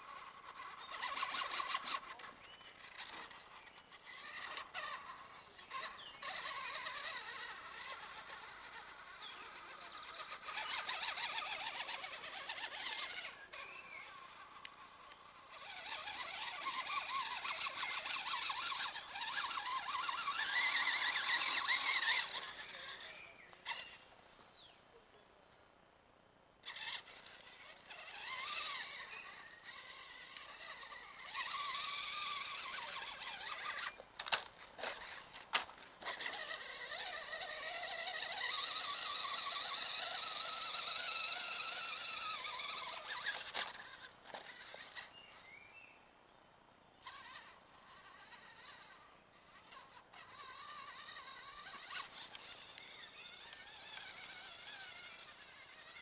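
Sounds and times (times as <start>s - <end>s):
rc truck electric motor whining: 0.0s - 24.6s, 26.6s - 45.9s, 47.0s - 56.0s.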